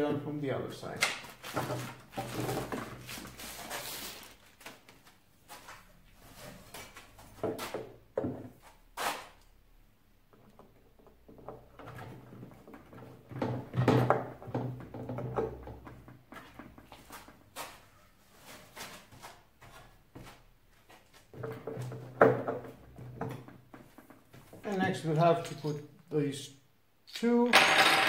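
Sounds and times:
plastic wrapping rustling: 1.2s - 5.9s.

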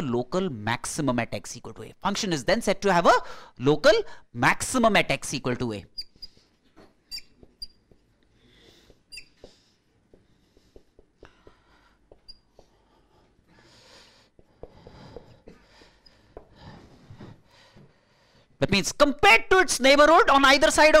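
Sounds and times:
marker pen writing on whiteboard: 6.0s - 13.5s, 14.2s - 16.8s.

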